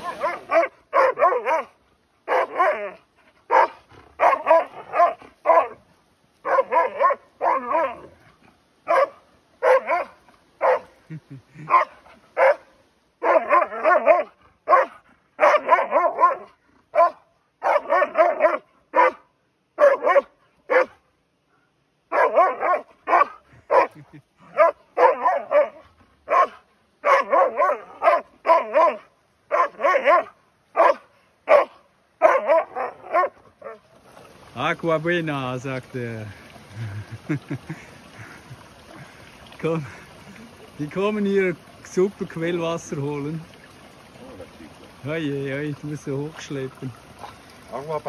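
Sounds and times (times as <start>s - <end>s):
dogs barking: 0.0s - 5.8s, 6.4s - 8.1s, 8.8s - 11.0s, 11.6s - 19.2s, 19.8s - 21.0s, 22.1s - 33.8s.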